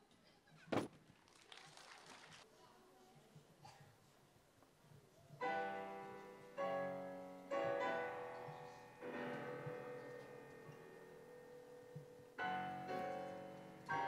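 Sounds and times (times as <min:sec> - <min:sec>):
digital piano playing slow chords: 0:05.4 - 0:14.0.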